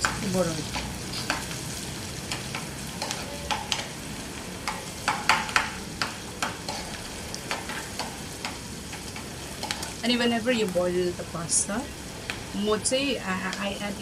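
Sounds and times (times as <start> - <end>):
metal spoon stirring in a pan: 0.0 - 10.0
vegetables sizzling in a pan: 0.0 - 14.0
spoon knocking on pan: 2.3 - 3.9, 4.6 - 6.8.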